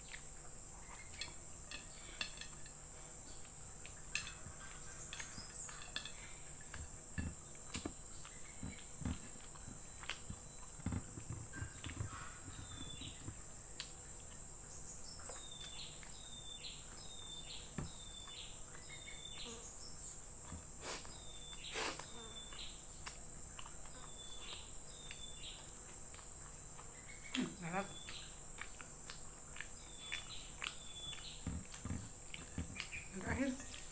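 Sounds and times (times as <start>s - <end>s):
high insect drone: 0.0s - 33.9s
chewing with lip smacks: 7.6s - 12.7s, 20.4s - 33.9s.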